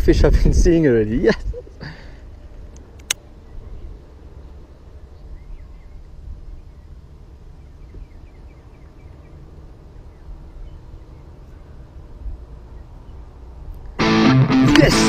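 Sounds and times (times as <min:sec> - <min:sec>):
wind rumbling on microphone: 0:00.0 - 0:01.8, 0:02.6 - 0:14.0
bird chirping: 0:03.3 - 0:13.9.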